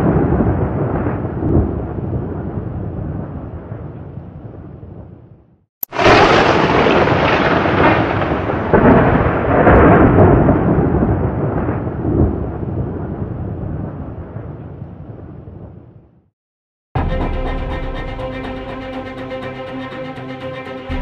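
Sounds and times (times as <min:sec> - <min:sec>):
thunder-like rumble: 0:00.0 - 0:05.2, 0:05.9 - 0:16.0.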